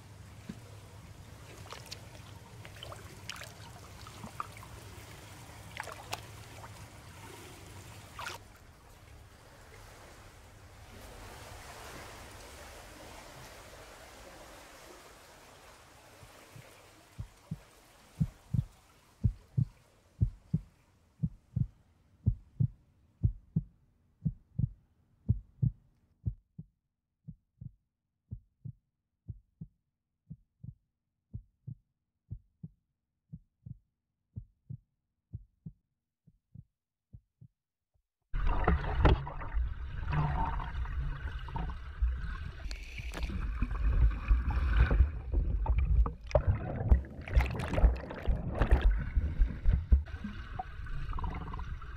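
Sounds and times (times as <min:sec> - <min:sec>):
churning water: 0:00.0 - 0:20.7, 0:38.4 - 0:51.9
heartbeat: 0:16.2 - 0:37.6, 0:43.5 - 0:50.1.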